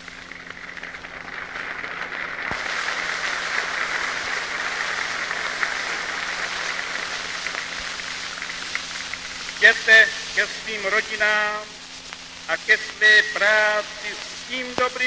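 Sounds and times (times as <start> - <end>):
crowd applauding: 0.0 - 10.9
low hum: 0.0 - 15.0.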